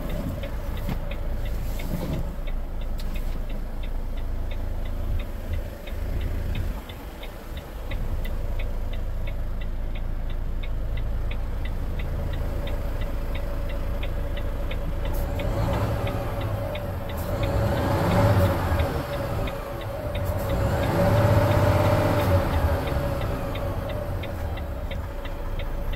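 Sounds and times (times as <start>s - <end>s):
diesel truck engine running: 0.0s - 25.9s
hazard-light relay ticking: 0.0s - 25.9s.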